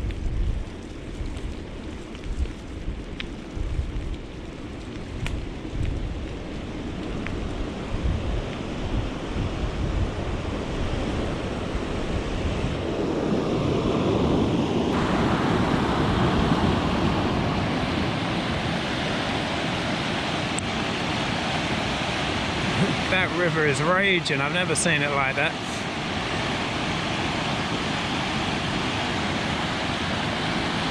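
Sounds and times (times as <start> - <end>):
wind on microphone: 0.0 - 24.4, 25.4 - 30.9
river rushing: 6.7 - 30.9.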